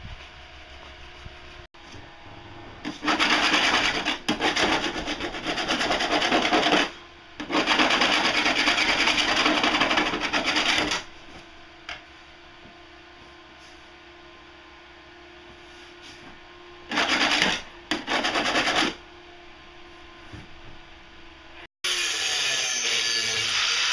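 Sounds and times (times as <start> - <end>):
scraper rasping on hull: 2.9 - 11.0, 16.9 - 19.0.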